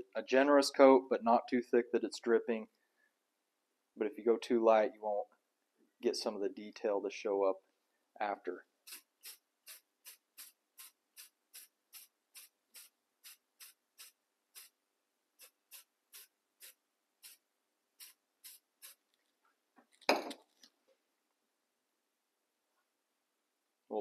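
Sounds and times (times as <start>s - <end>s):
spray can hissing: 8.9s - 14.8s, 15.4s - 17.4s, 18.0s - 19.0s.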